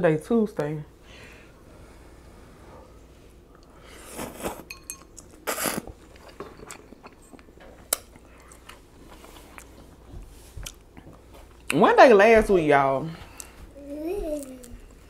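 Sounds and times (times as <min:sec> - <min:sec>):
plastic fork clinking glass bowl: 0:04.7 - 0:05.1
chewing and mouth sounds: 0:05.0 - 0:11.7.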